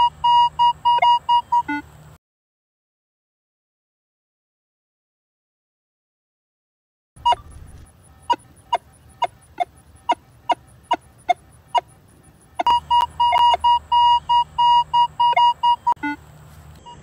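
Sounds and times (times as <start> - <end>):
metal detector short clipped beeps: 7.2 - 11.4, 12.6 - 16.2, 16.8 - 17.0.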